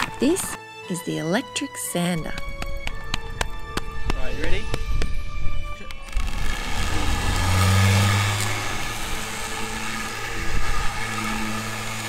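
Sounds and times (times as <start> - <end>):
electric orbital sander sanding wood: 5.8 - 12.0.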